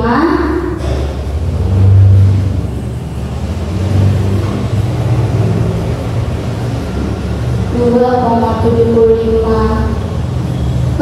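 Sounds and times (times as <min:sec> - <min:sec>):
low rumbling hum: 0:00.0 - 0:11.0.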